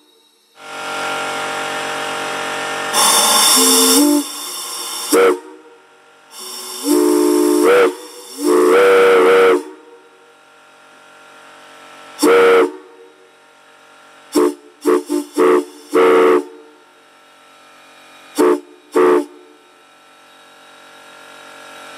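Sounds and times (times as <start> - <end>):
three-chime steam whistle blasts: 0.0 - 9.9, 12.2 - 13.0, 14.4 - 16.8, 18.4 - 19.6
faint hiss of air: 2.9 - 10.2, 14.3 - 16.8.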